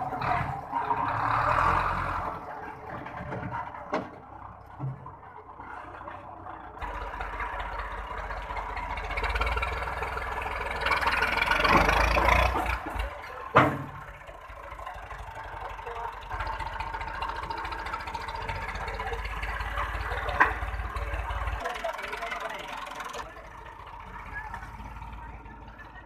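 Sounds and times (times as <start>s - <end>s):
tractor engine revving: 0.0s - 26.0s.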